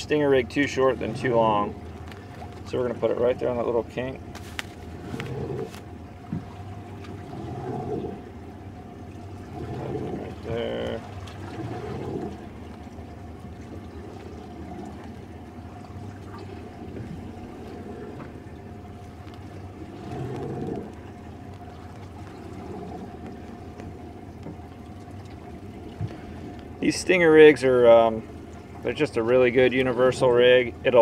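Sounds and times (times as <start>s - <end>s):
steady low hum: 0.0s - 31.0s
water sloshing against hull: 0.0s - 31.0s.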